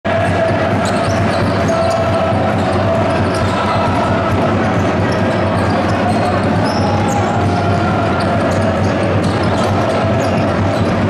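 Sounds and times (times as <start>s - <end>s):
crowd noise: 0.0s - 11.0s
basketball bouncing on court: 0.1s - 11.0s.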